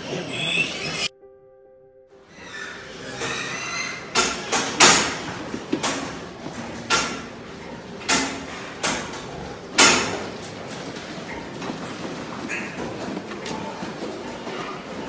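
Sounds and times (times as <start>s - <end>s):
metal bars rattling and clanking: 3.1s - 15.0s.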